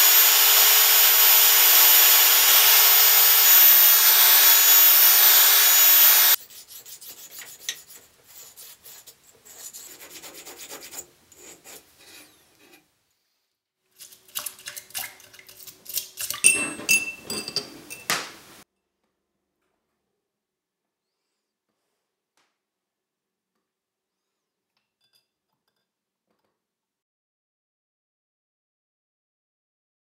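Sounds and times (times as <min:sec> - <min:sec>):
belt file running: 0:00.0 - 0:06.4
hand filing strokes on steel: 0:00.0 - 0:12.9
steel piece clinking against glass: 0:16.3 - 0:18.2.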